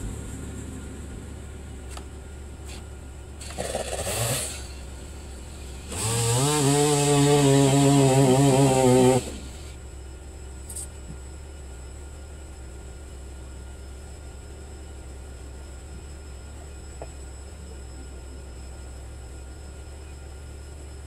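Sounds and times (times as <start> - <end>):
steady low hum: 0.0 - 21.0
chainsaw engine running: 1.8 - 9.8.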